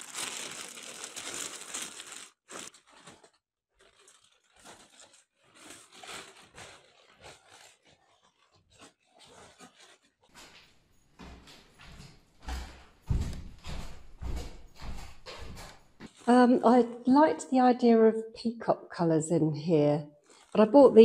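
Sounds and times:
plastic bags rustling: 0:00.0 - 0:10.8, 0:13.1 - 0:17.0
footsteps: 0:08.8 - 0:16.6.

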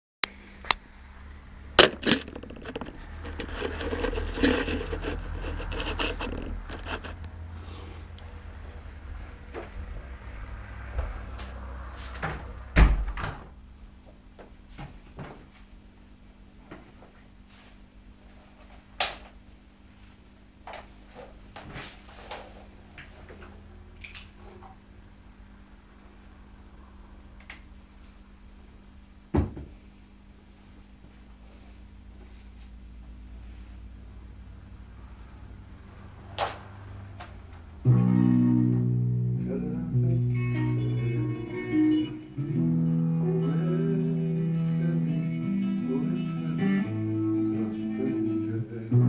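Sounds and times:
faint steady hum: 0:00.2 - 0:49.0
rustling handling noise: 0:01.8 - 0:07.2.

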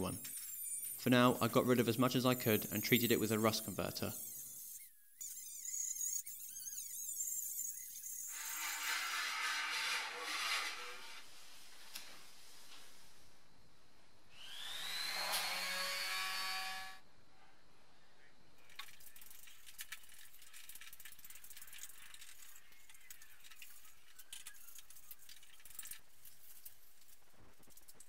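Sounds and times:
scratchy brushing on bare steel: 0:04.7 - 0:11.4
power tool whine: 0:14.4 - 0:17.0.

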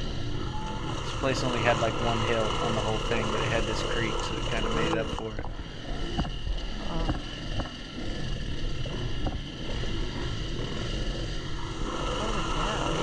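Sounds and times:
dirt bike engine at low revs: 0:00.0 - 0:13.0.

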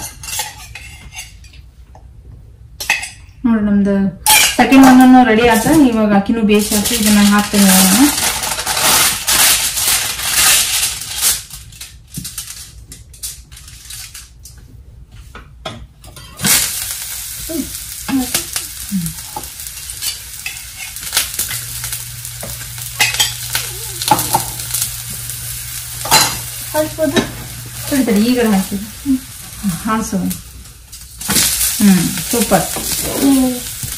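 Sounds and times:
dough sizzling on griddle pan: 0:06.6 - 0:14.3, 0:16.1 - 0:33.9.

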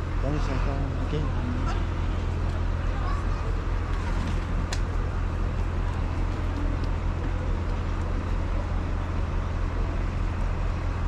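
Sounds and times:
road traffic noise: 0:00.0 - 0:11.0
vehicle engine rumble: 0:00.0 - 0:11.0.

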